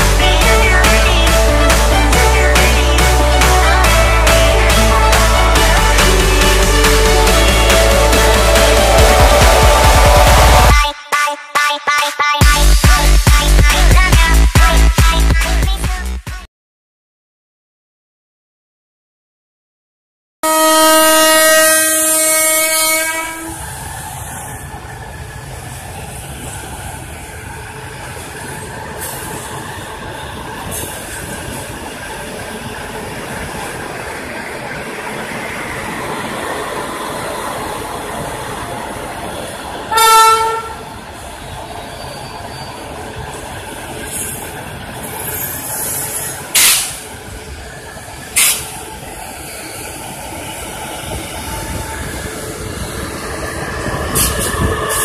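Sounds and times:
locomotive humming: 0.0s - 10.8s, 20.4s - 55.0s
locomotive horn blast: 20.4s - 23.6s, 39.9s - 40.9s.

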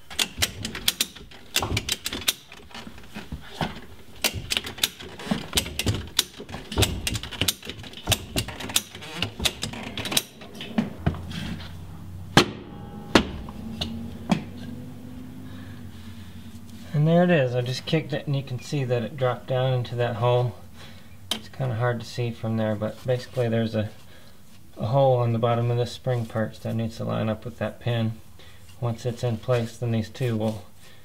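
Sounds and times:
metal clicks and knocks: 0.0s - 11.7s
loud metal knocks: 5.4s - 14.6s.

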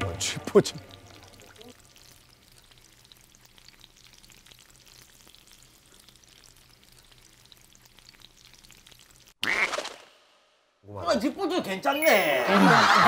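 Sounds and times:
food sizzling in oil: 0.5s - 9.6s.

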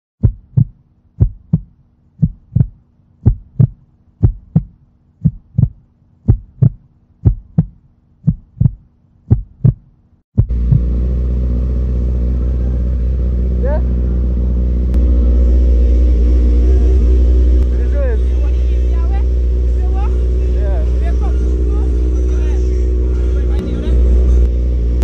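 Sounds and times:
heartbeat thumps: 0.2s - 11.0s
motorcycle engine running: 10.4s - 25.0s
faint hum: 11.9s - 25.0s.

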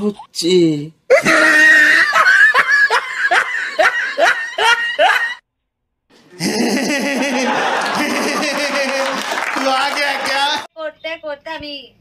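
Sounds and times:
man laughing: 1.1s - 5.4s, 6.3s - 10.6s.

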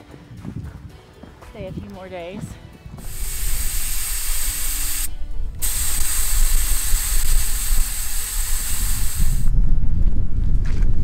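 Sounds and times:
air hissing from tire: 3.0s - 9.5s.

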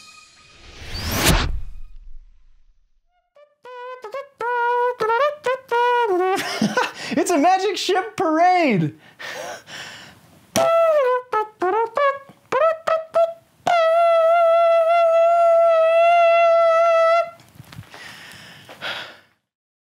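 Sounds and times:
trumpet-like fanfare: 3.3s - 6.6s, 10.6s - 17.4s.

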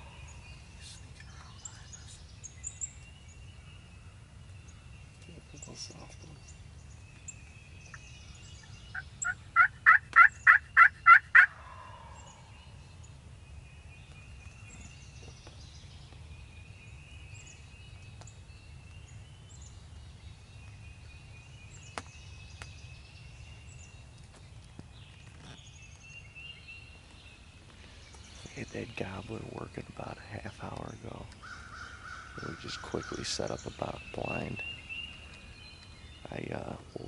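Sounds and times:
turkey call hen yelps: 9.2s - 12.2s.

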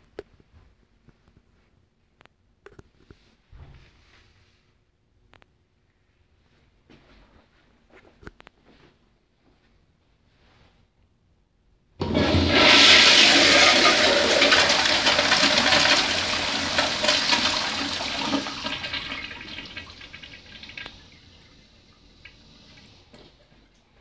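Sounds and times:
toilet flushing: 12.0s - 24.0s
faint water trickle: 19.7s - 24.0s.

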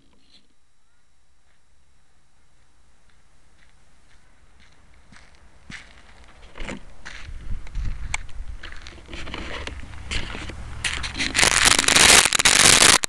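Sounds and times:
crackling scraping rumble: 5.3s - 13.0s
loud harsh noise: 10.2s - 13.0s.

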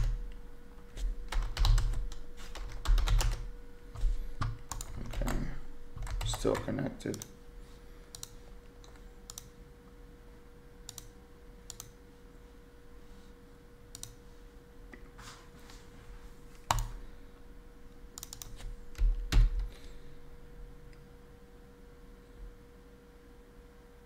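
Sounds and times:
keyboard keys typing: 0.0s - 7.3s, 11.7s - 12.0s, 16.6s - 17.0s, 18.2s - 19.7s
mouse clicks: 10.9s - 11.1s.

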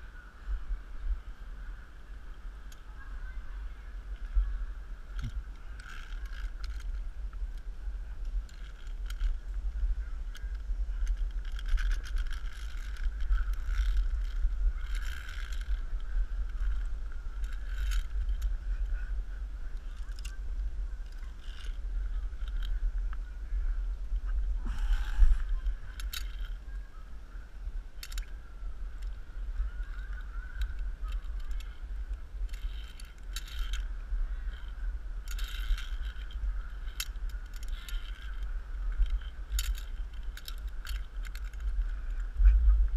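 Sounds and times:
metallic carabiner clinks: 32.5s - 33.8s, 34.5s - 42.2s.

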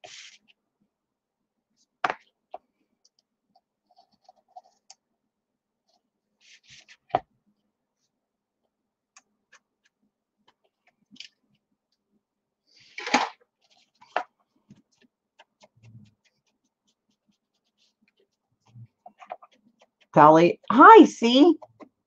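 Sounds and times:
paper rustling: 12.8s - 20.1s.

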